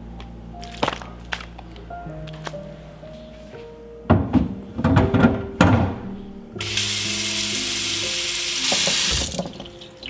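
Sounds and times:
tap water running onto board: 0:06.6 - 0:10.0
wooden block knocking on steel sink: 0:08.7 - 0:09.6.

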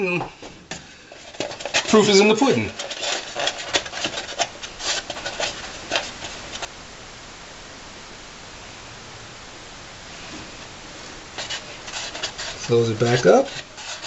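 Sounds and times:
steady hiss: 0:00.0 - 0:14.0
hands scraping and clicking on engine parts: 0:00.7 - 0:06.7.

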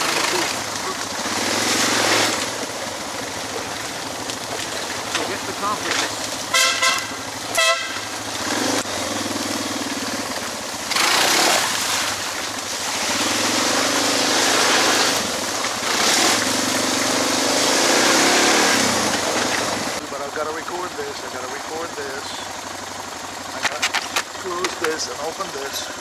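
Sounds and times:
motorcycle engine running: 0:00.0 - 0:26.0
horn toot: 0:06.5 - 0:08.8.

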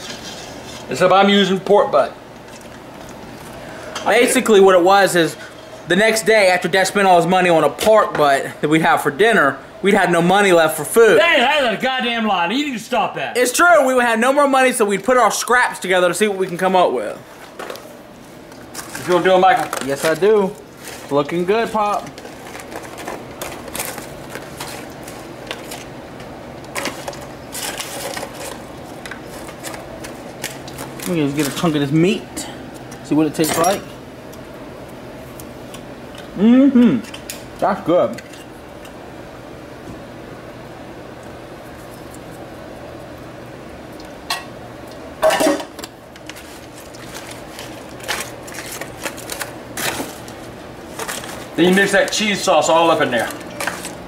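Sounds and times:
foil pan crinkling and scraping: 0:00.0 - 0:01.0, 0:18.5 - 0:26.0, 0:26.6 - 0:32.1, 0:45.4 - 0:54.0
steady low hum: 0:00.0 - 0:54.0.

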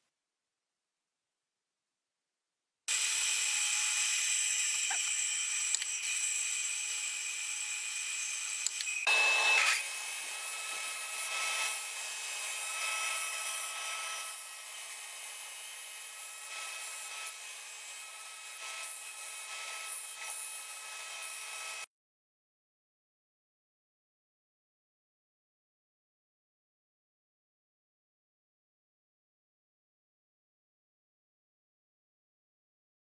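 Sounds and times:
drill press boring steel: 0:02.9 - 0:21.8
belt sander grinding wood: 0:02.9 - 0:21.9.

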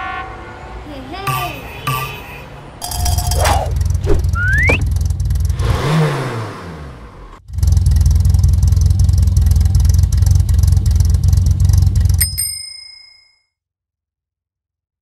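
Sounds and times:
cartoon car engine chugging: 0:02.8 - 0:06.4, 0:07.0 - 0:12.4
short rising whistle: 0:03.2 - 0:04.9.

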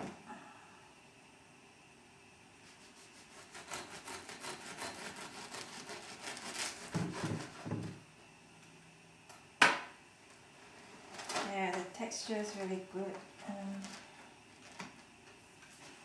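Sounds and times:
knife sawing through bread: 0:02.7 - 0:07.8.

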